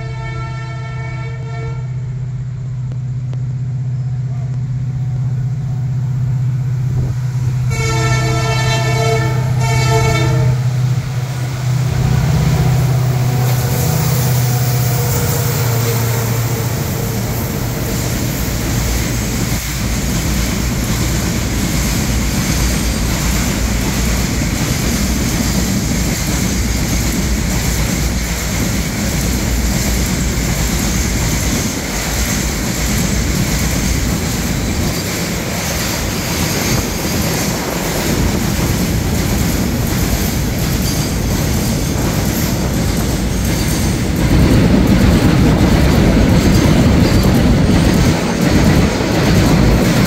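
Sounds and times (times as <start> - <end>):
train horn blasts: 0.0 - 2.3, 7.6 - 17.7
diesel locomotive engine drone: 0.0 - 50.0
train wheels rumbling on rail: 0.0 - 50.0.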